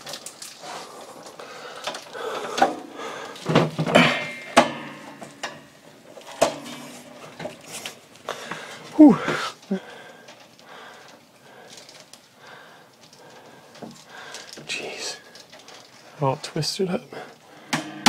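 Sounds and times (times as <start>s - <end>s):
wires rustling: 0.0s - 17.8s
wires knocking on metal box: 3.8s - 5.6s.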